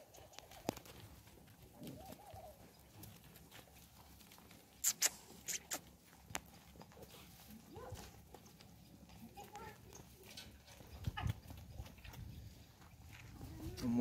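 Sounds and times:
sharp clicks: 0:04.8 - 0:05.9.

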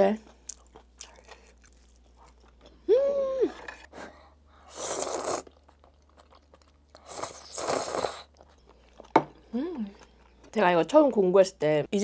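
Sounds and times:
closed-mouth hum: 0:02.7 - 0:05.5
loud noodle slurps: 0:04.7 - 0:05.5, 0:07.0 - 0:08.3.

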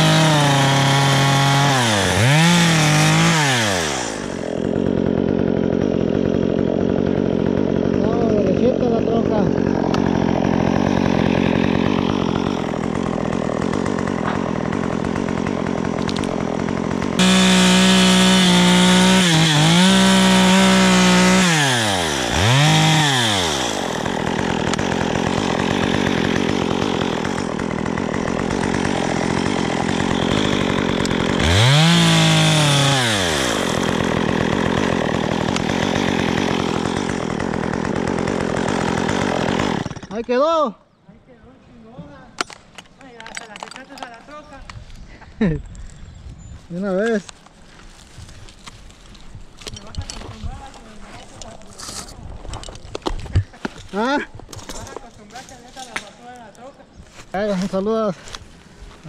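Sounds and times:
chainsaw revving: 0:00.0 - 0:40.2.

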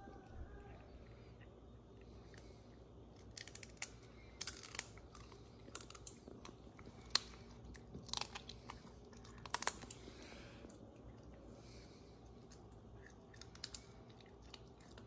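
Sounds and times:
animal teeth crunching meat: 0:03.1 - 0:10.1.

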